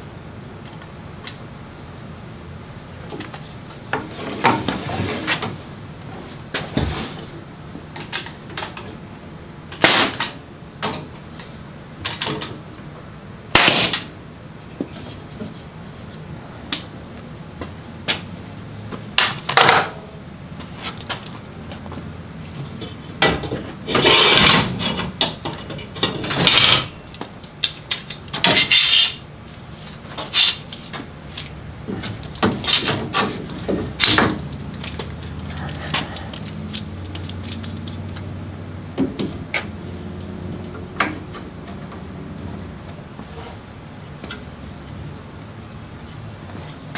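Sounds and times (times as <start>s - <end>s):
scraping sounds: 3.4s - 7.4s.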